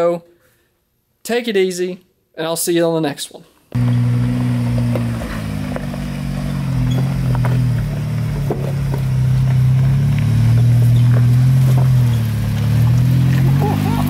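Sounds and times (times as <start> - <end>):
truck engine at low revs: 3.8 - 14.0
tyres crunching on rock: 3.8 - 14.0.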